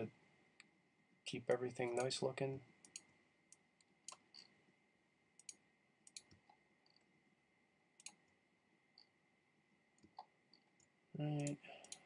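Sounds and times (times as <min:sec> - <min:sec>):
computer mouse clicks: 0:02.8 - 0:04.6, 0:05.4 - 0:07.1, 0:08.0 - 0:08.4, 0:10.0 - 0:12.0.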